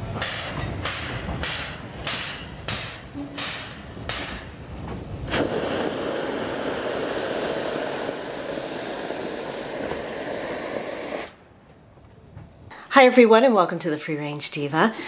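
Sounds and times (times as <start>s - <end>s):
steam locomotive venting steam: 0.0s - 11.6s.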